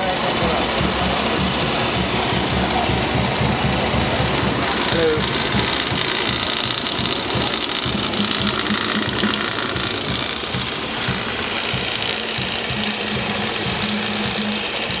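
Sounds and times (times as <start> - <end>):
small petrol engine running: 0.0 - 15.0.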